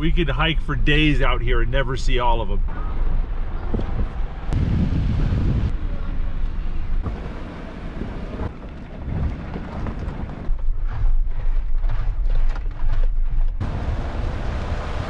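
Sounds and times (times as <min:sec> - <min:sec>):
vehicle tyres and engine rumbling: 0:00.0 - 0:15.0
wind buffeting microphone: 0:02.6 - 0:12.0.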